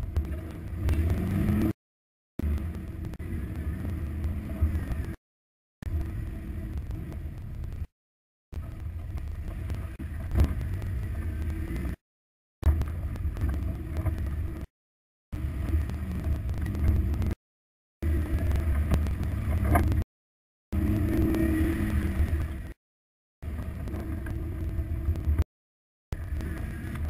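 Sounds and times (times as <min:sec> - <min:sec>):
engine running at low speed: 0:00.0 - 0:01.8, 0:02.4 - 0:05.2, 0:05.8 - 0:07.9, 0:08.5 - 0:12.0, 0:12.6 - 0:14.7, 0:15.3 - 0:17.4, 0:18.0 - 0:20.0, 0:20.7 - 0:22.8, 0:23.4 - 0:25.4, 0:26.1 - 0:27.0
tyres rumbling on dirt: 0:00.0 - 0:01.8, 0:02.4 - 0:05.2, 0:08.6 - 0:12.0, 0:12.6 - 0:14.7, 0:15.4 - 0:17.4, 0:18.0 - 0:20.0, 0:20.8 - 0:22.8
wind on camera: 0:08.5 - 0:12.0, 0:15.4 - 0:17.4, 0:18.0 - 0:20.0.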